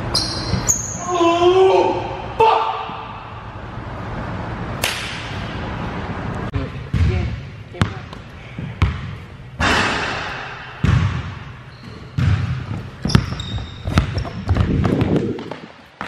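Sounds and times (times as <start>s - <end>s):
sneaker squeaks: 0.0s - 1.3s, 11.6s - 14.8s
basketball bouncing on hardwood floor: 6.9s - 7.2s, 10.8s - 11.3s, 12.1s - 15.6s.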